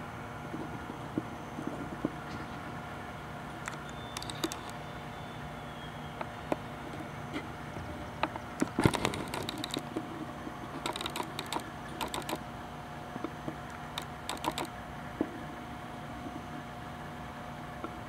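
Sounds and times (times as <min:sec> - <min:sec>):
faint steady hum: 0:00.0 - 0:18.0
sharp clicks: 0:03.6 - 0:04.8, 0:08.2 - 0:10.0, 0:10.8 - 0:12.5, 0:13.2 - 0:14.8.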